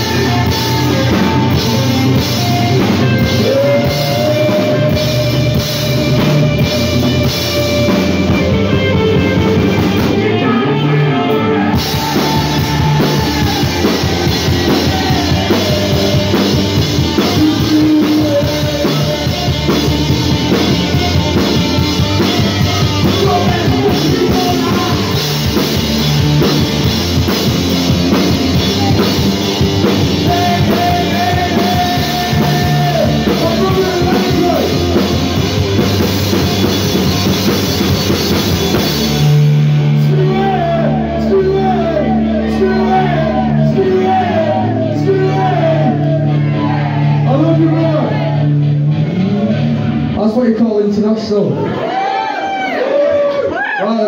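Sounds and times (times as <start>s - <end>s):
man singing: 0.0s - 25.6s, 29.8s - 35.2s, 39.9s - 46.3s
drum kit: 0.0s - 50.2s
distorted electric guitars: 0.0s - 54.0s.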